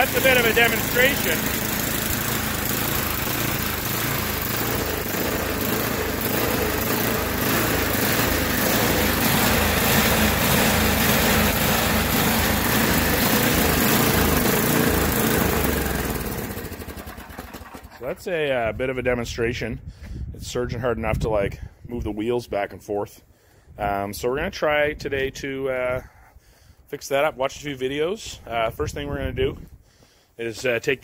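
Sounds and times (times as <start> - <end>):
engine surging idle: 0.0 - 18.1.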